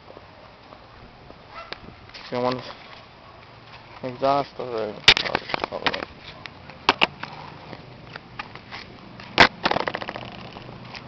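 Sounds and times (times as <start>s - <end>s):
camera knocking on concrete: 9.4s - 10.7s.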